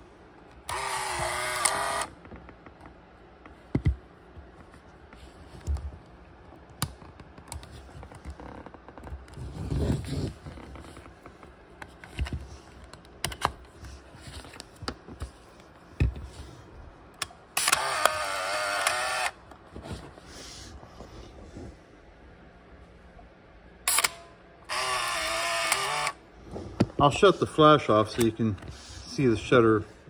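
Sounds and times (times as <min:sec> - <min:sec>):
clicks of camera switches: 0:00.7 - 0:02.1, 0:17.2 - 0:19.3, 0:23.9 - 0:24.2.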